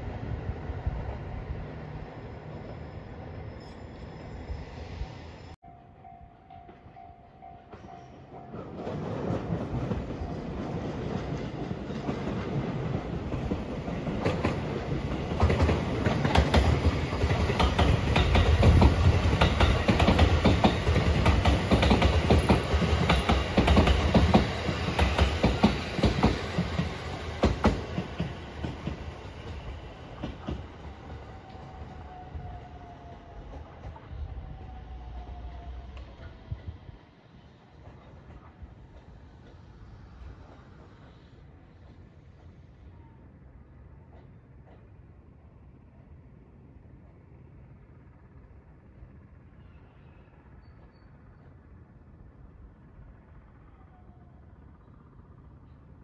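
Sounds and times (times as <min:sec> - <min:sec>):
train passing: 0:00.0 - 0:56.0
wheels clacking over rail joints: 0:07.7 - 0:31.7.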